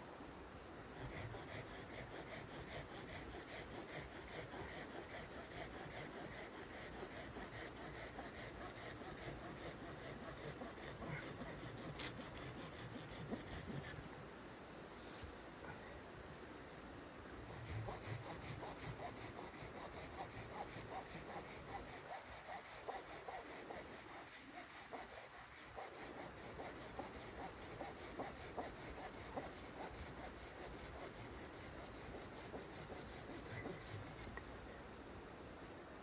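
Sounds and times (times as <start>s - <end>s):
pruning saw cutting a branch: 1.1s - 13.8s.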